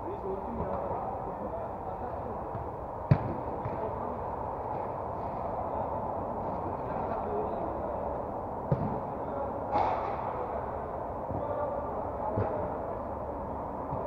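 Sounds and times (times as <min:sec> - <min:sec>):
football kick thuds: 0:03.1 - 0:03.9.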